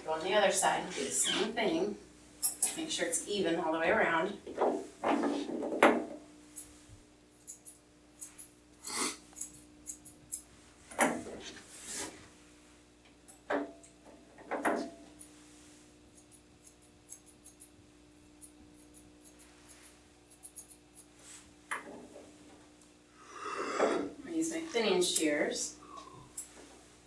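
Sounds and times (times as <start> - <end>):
scissors snipping hair: 7.4 - 8.5, 9.3 - 10.5, 16.1 - 21.1
hair and hands rubbing: 19.3 - 21.6.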